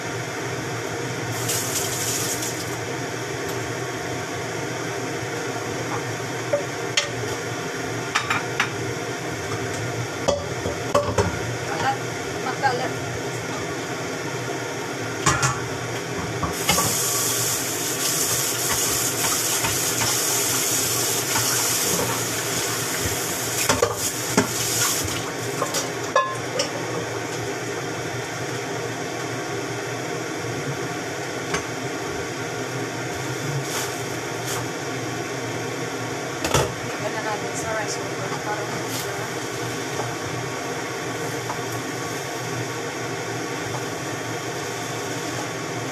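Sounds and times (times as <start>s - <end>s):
tap water filling kettle: 16.4s - 26.4s.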